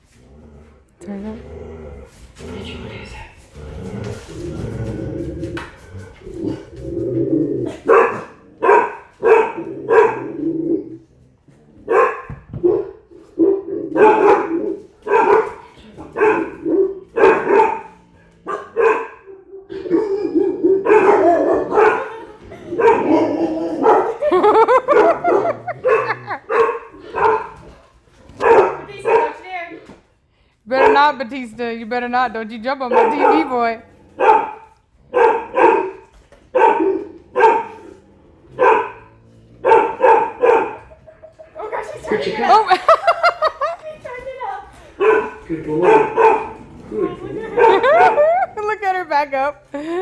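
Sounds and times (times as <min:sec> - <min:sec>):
dogs barking deeply: 0:06.2 - 0:11.0, 0:11.8 - 0:29.4, 0:30.7 - 0:31.4, 0:32.7 - 0:43.8, 0:45.0 - 0:49.0.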